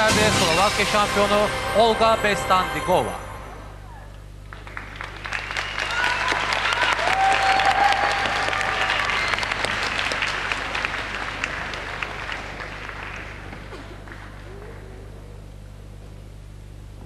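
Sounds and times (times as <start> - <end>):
audience applauding: 4.4 - 15.4.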